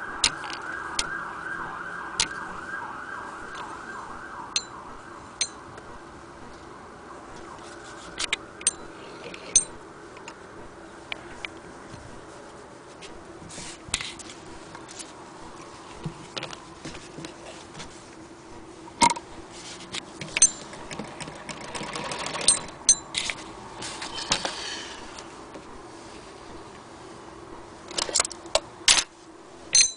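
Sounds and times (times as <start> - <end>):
sewing machine clicking and ticking: 20.2 - 22.9.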